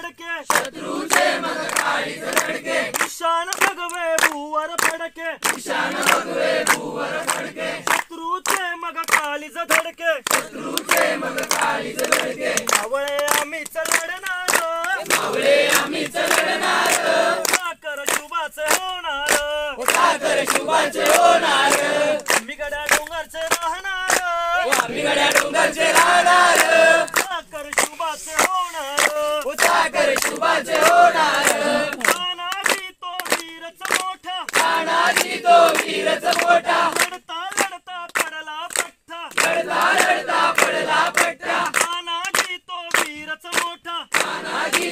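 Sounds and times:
hands clapping steady beat: 0:00.0 - 0:44.9
group singing together: 0:00.4 - 0:04.3, 0:05.4 - 0:08.2, 0:09.2 - 0:32.2, 0:33.9 - 0:37.2, 0:39.3 - 0:41.8, 0:44.1 - 0:44.9.

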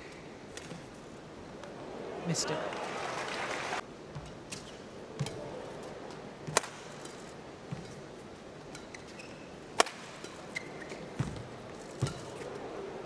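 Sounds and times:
rackets striking shuttlecock: 0:04.2 - 0:08.0, 0:08.6 - 0:12.5
shoe squeaks on court: 0:08.8 - 0:09.6, 0:10.4 - 0:12.4.

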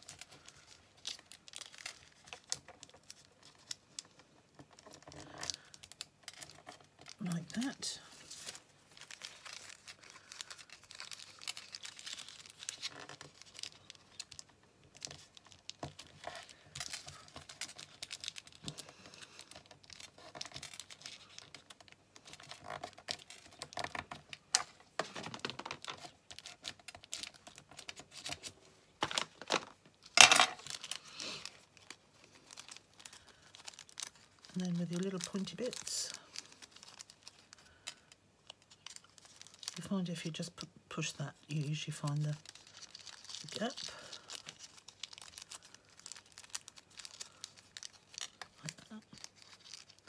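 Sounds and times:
paper rustling and crinkling: 0:00.0 - 0:50.0.

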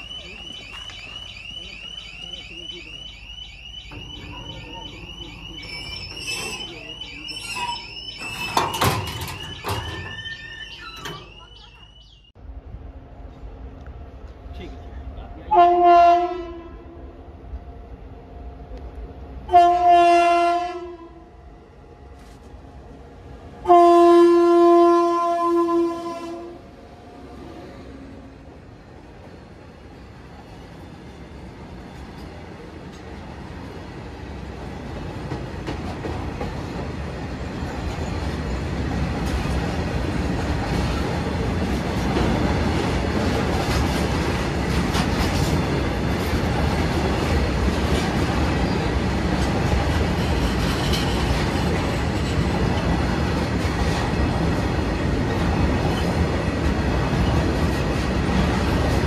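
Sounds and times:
train rumble and wheel clatter: 0:00.0 - 0:59.0
locomotive horn blast: 0:15.5 - 0:17.0, 0:19.5 - 0:21.2, 0:23.6 - 0:26.6.

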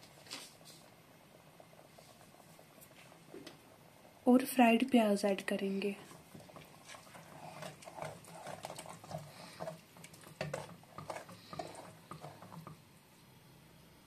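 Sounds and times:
liquid sloshing in pot: 0:05.9 - 0:12.9
spatula tapping and scraping pot: 0:05.9 - 0:12.9.

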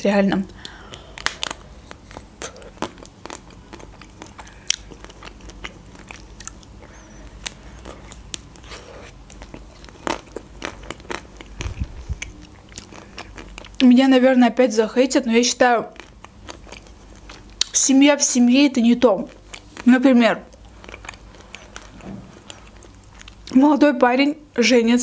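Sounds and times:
chewing and mouth sounds: 0:00.6 - 0:14.0, 0:15.8 - 0:17.8, 0:19.2 - 0:23.6.

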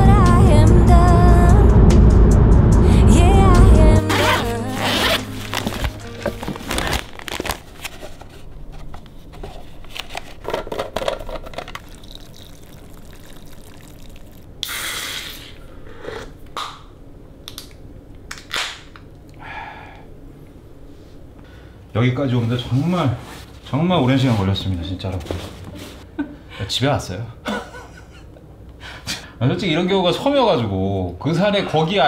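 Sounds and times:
water pouring from thermos: 0:11.2 - 0:14.8.

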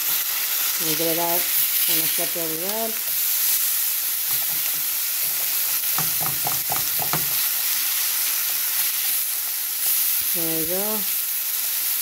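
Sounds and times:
chicken sizzling in oil: 0:00.0 - 0:12.0
spatula scraping and tapping pan: 0:04.2 - 0:07.6.

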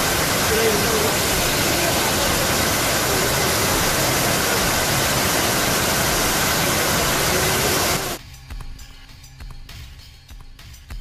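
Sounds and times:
floodwater rushing: 0:00.0 - 0:08.2.

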